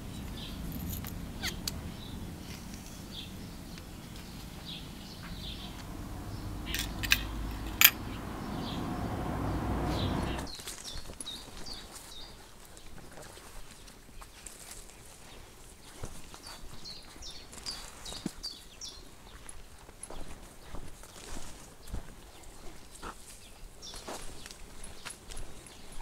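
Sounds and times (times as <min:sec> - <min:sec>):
birds chirping: 0:00.0 - 0:10.5
low background rumble: 0:00.0 - 0:10.5.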